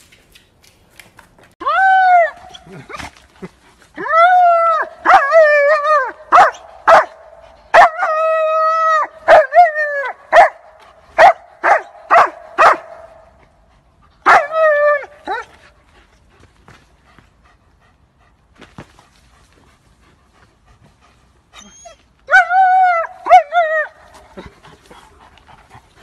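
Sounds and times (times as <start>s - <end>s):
dog barking: 6.3s - 8.0s, 9.3s - 9.5s, 10.3s - 10.6s, 11.2s - 13.1s
dog whining: 21.6s - 22.4s.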